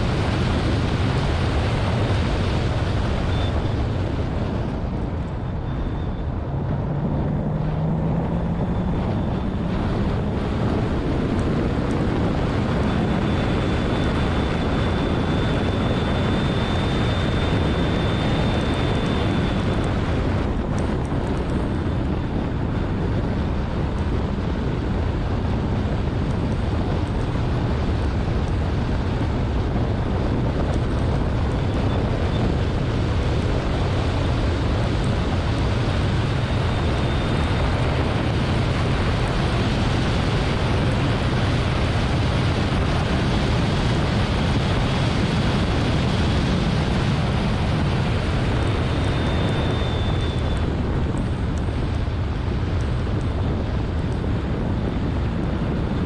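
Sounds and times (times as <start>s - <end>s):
car engine: 0.0s - 25.2s
tyre and road noise: 0.0s - 56.0s
wind buffeting microphone: 0.0s - 56.0s.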